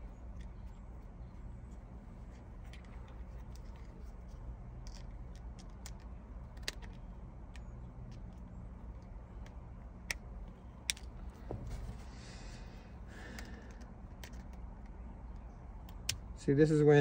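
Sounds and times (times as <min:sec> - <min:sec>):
steady low hum: 0:00.0 - 0:17.0
metal parts clicking: 0:02.2 - 0:11.3.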